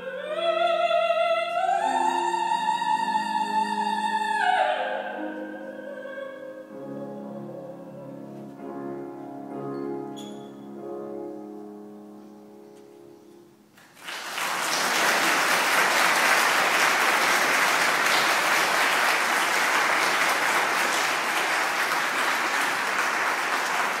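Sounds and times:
audience applause: 0:13.8 - 0:24.0.

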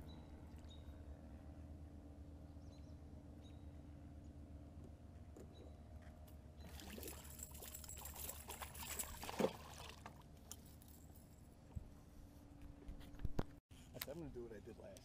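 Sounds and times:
fish splashing in water: 0:06.7 - 0:10.2.

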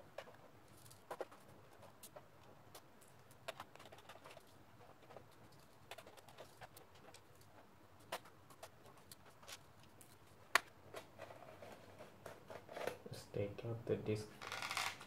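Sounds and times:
loose screws being handled: 0:14.4 - 0:15.0.

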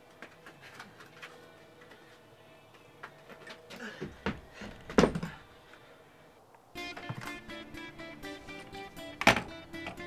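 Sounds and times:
plucked guitar-like music: 0:06.8 - 0:10.0.

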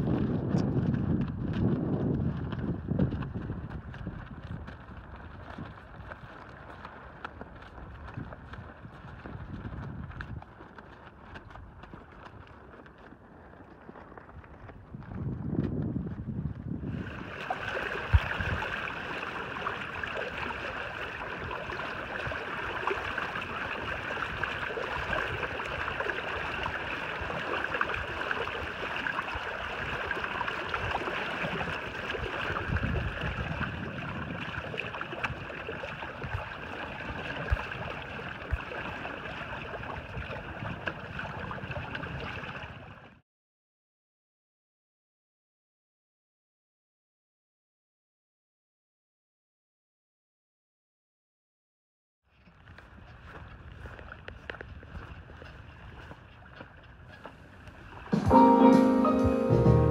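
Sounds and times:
wind buffeting microphone: 0:00.0 - 0:43.2, 0:52.6 - 0:58.1
water rushing and splashing: 0:02.4 - 0:12.2, 0:16.9 - 0:43.2, 0:53.2 - 0:59.9.

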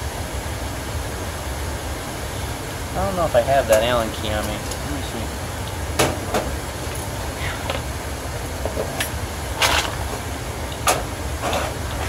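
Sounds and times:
rooftop air conditioner rumble: 0:00.0 - 0:12.0.

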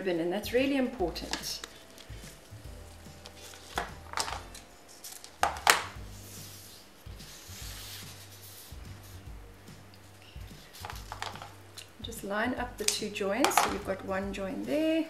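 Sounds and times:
ribbon rubbing on fondant: 0:04.8 - 0:09.4, 0:10.5 - 0:11.5.

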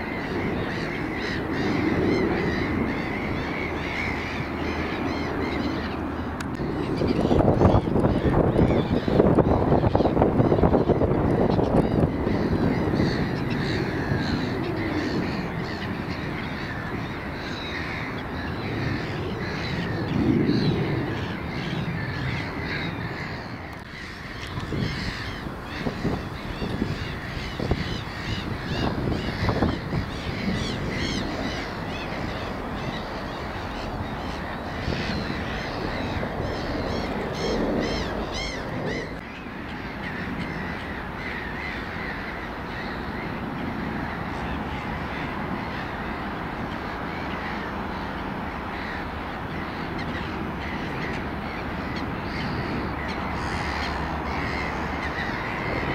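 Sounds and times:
birds calling and chirping: 0:00.0 - 0:55.9
steady low rumble: 0:00.0 - 0:55.9.

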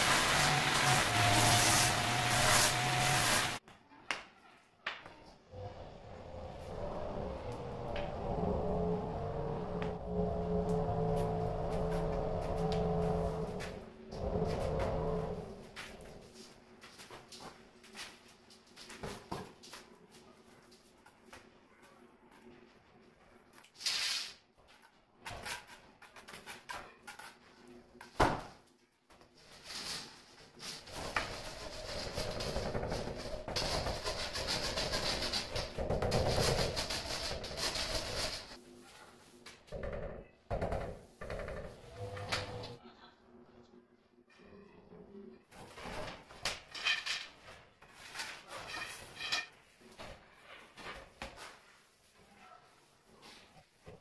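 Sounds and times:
hand scraping on tiles: 0:29.5 - 0:39.2.

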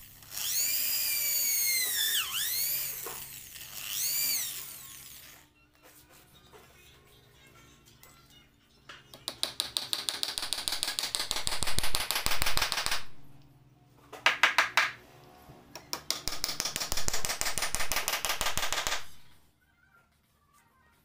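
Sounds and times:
hammer tapping nails into wood: 0:09.2 - 0:13.0, 0:14.2 - 0:15.0, 0:15.8 - 0:19.2.

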